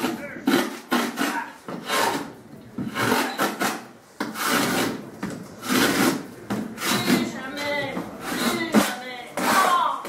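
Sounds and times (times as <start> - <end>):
scraping against cardboard: 0.0 - 9.9.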